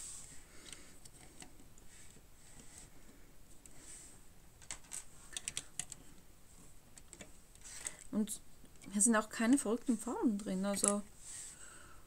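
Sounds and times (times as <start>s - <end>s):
plastic building bricks clicking: 4.6s - 6.0s, 7.0s - 8.1s.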